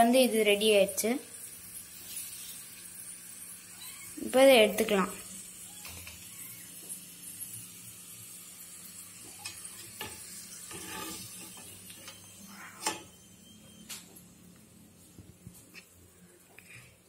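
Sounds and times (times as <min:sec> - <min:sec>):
potatoes sizzling in hot oil: 0:00.0 - 0:13.0
metal skimmer scraping a pan: 0:09.3 - 0:13.1.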